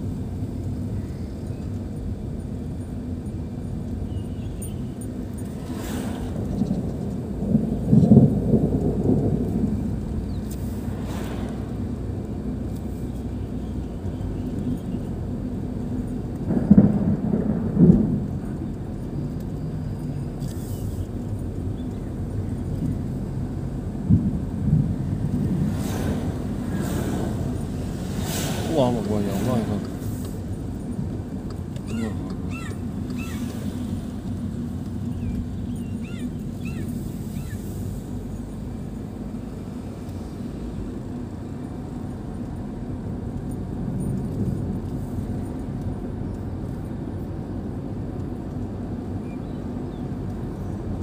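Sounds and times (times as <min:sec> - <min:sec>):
car road noise: 0:00.0 - 0:51.0
thunder rumbling: 0:05.5 - 0:12.7, 0:15.2 - 0:20.4, 0:21.1 - 0:39.8
car hissing past: 0:05.6 - 0:06.5, 0:10.6 - 0:11.9, 0:25.6 - 0:30.4
high chirping calls: 0:31.8 - 0:33.5, 0:35.1 - 0:37.6.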